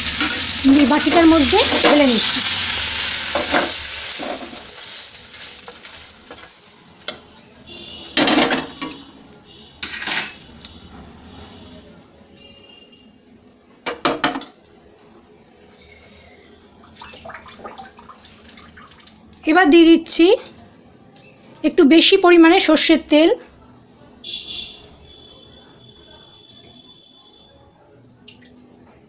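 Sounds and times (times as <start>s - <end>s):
oil sizzling: 0.0s - 10.8s, 15.7s - 19.5s.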